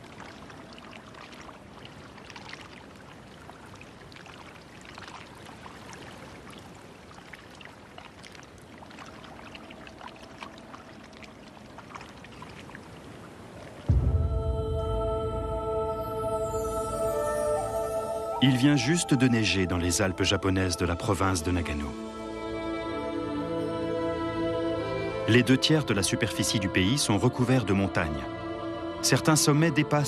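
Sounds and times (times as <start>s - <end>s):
small splashes: 0.0s - 13.9s
water flowing and trickling: 0.0s - 28.3s
ambient music: 13.9s - 30.0s.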